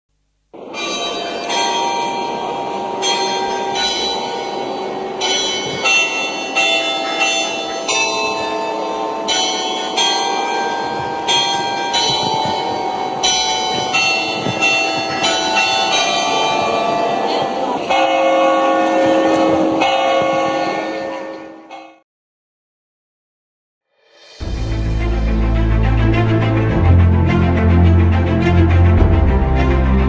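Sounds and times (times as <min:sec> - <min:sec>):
bells ringing: 0:00.6 - 0:22.0.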